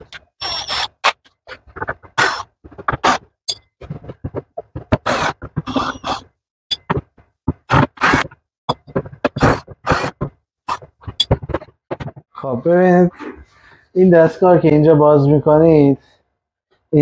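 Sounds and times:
scrapes and knocks on machine casing: 1.5s - 5.7s, 6.8s - 12.3s.

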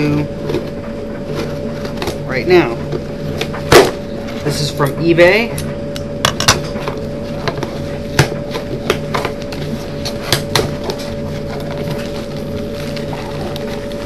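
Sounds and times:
steady electrical hum: 0.0s - 14.0s
cardboard package being handled: 7.2s - 14.0s.

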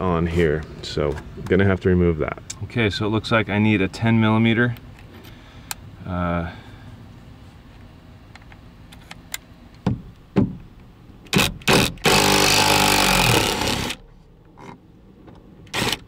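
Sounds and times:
cordless drill running: 11.7s - 14.0s.

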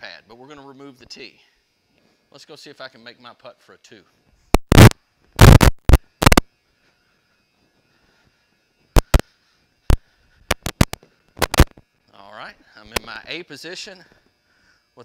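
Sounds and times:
faint steady hum: 3.9s - 15.0s
microphone rubbing on shirt: 4.4s - 7.0s, 8.9s - 9.3s, 9.9s - 11.8s.

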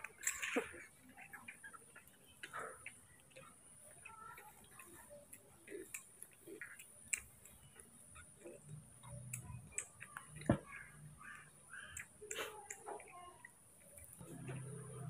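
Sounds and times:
baby monkeys sucking bottles: 0.0s - 15.0s.

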